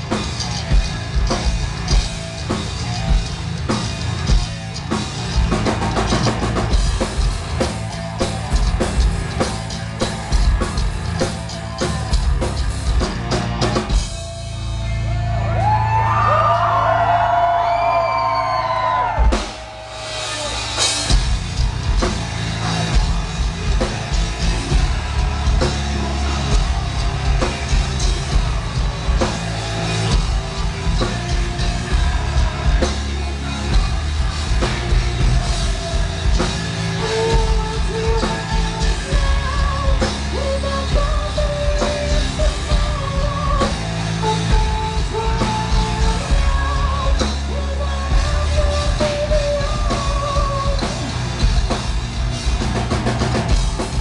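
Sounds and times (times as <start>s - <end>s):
live metal band playing: 0.0s - 54.0s
person singing: 31.5s - 51.1s.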